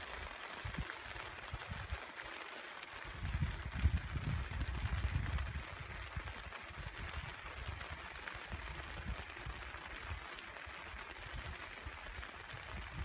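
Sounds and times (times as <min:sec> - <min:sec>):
wind gusting on microphone: 0:03.1 - 0:07.9.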